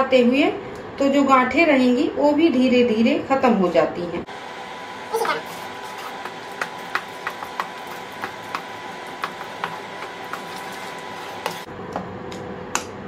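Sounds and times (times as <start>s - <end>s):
induction cooktop hum: 0.0s - 13.0s
spatula scraping a pan: 7.0s - 11.7s.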